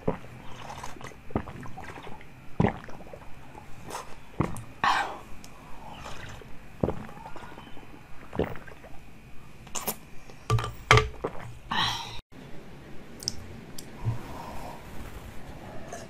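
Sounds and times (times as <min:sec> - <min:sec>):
wet slurping mouth sounds: 0:00.0 - 0:04.7, 0:05.9 - 0:09.0, 0:09.7 - 0:10.1.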